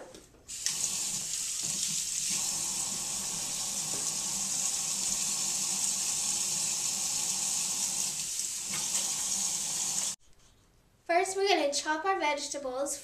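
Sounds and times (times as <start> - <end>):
hands washing under water: 0.5 - 5.9, 7.9 - 10.1
faucet running into sink: 0.5 - 10.2.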